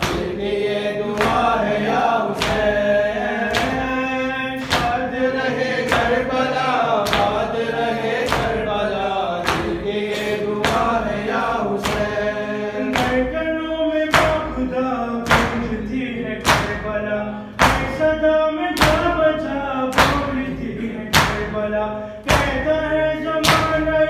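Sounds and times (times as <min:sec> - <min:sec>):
chest-beating slaps: 0:00.0 - 0:00.4, 0:01.1 - 0:02.8, 0:03.4 - 0:03.9, 0:04.6 - 0:05.0, 0:07.0 - 0:07.4, 0:08.2 - 0:08.6, 0:09.4 - 0:11.0, 0:17.6 - 0:18.1, 0:21.1 - 0:21.6
man chanting into a microphone: 0:02.5 - 0:24.0.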